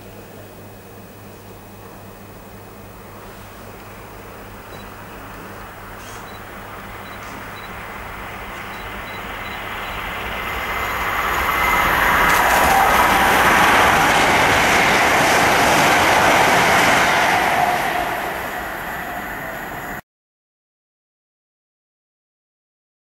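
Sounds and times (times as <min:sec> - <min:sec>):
train passing: 0:03.0 - 0:20.0.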